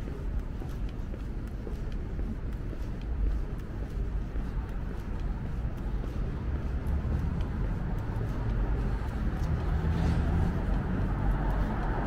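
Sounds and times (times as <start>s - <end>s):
footsteps on pavement: 0.0s - 12.0s
traffic rumble: 0.0s - 12.0s.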